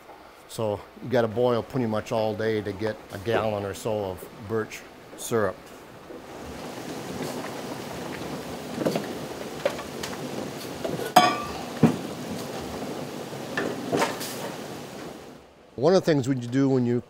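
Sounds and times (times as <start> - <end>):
sap boiling and bubbling: 0.0 - 15.8
metal knocks: 8.6 - 12.8
ringing metal clank: 11.2 - 11.7.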